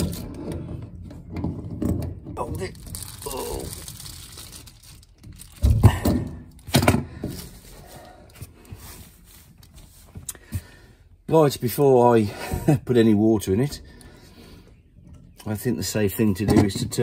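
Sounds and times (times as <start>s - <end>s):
tools thunking on wooden floor: 5.6s - 7.4s
tool rustling and scraping: 6.6s - 10.7s.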